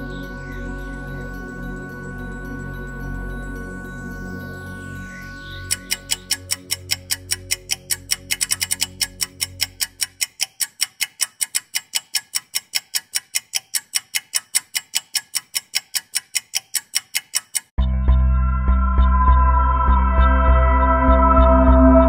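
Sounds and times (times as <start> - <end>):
ambient music drone: 0.0 - 10.0, 17.8 - 22.0
clock ticking: 5.7 - 17.8.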